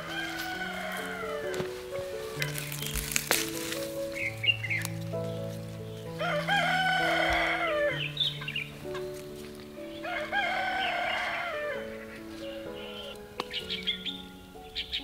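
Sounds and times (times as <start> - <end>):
rooster crowing: 0.0 - 2.6, 6.2 - 8.6, 9.9 - 13.1
soft music of held notes: 0.0 - 15.0.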